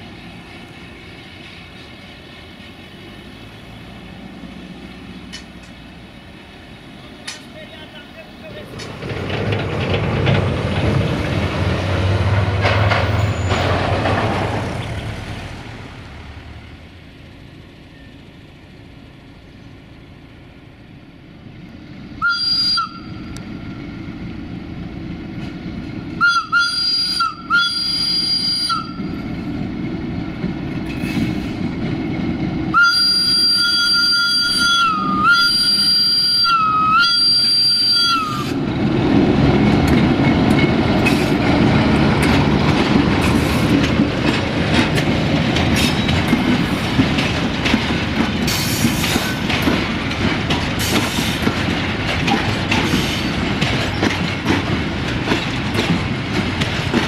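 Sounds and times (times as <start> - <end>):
trucks driving over crossing: 0.0 - 20.6, 28.8 - 57.0
train running noise: 0.0 - 57.0
locomotive whistle horn blasts: 22.2 - 23.1, 26.2 - 29.0, 32.8 - 38.5.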